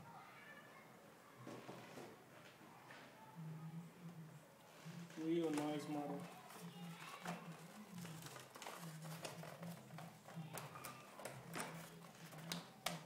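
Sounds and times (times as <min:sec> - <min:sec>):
model truck clicking on plastic: 0:07.2 - 0:13.0.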